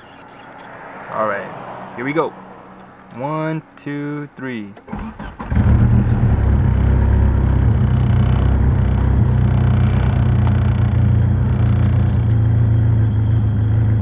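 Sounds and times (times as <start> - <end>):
car engine idling: 5.1 - 14.0.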